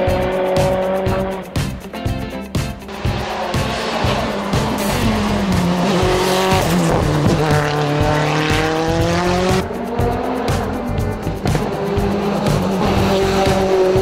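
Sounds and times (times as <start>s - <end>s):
race car engine accelerating: 2.9s - 14.0s.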